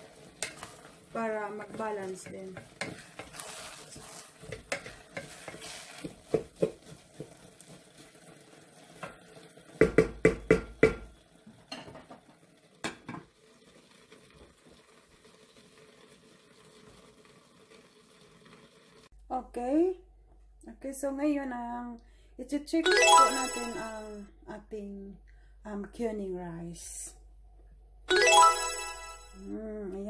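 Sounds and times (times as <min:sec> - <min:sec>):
spatula scraping rice pot: 0:01.7 - 0:07.3
spatula knocking on pot: 0:04.5 - 0:07.4, 0:09.8 - 0:11.1
faint background hum: 0:19.2 - 0:22.8.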